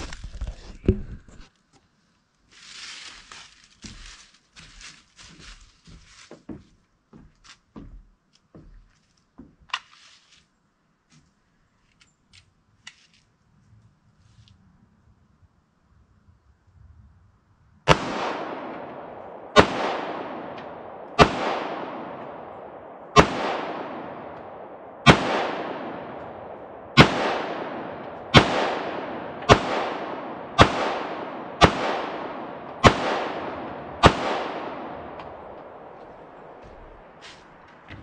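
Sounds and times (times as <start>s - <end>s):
pistol shots with echo: 17.9s - 37.1s.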